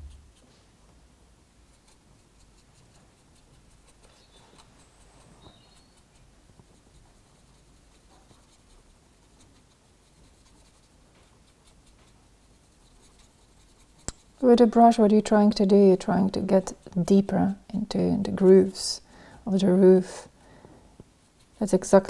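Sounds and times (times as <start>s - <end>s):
paintbrush scratching: 1.6s - 17.3s, 21.2s - 22.0s.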